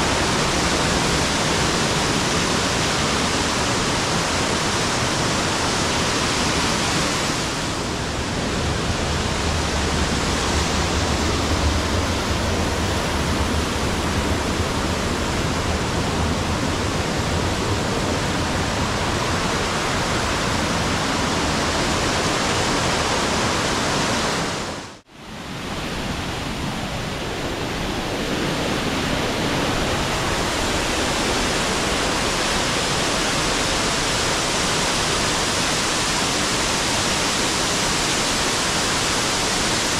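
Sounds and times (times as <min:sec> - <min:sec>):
waterfall rushing: 0:00.0 - 0:39.9.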